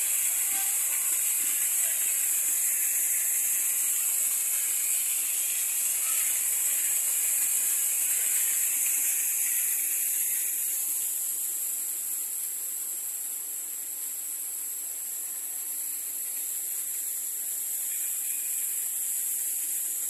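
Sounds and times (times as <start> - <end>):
waterfall splashing into pool: 0.0 - 11.1.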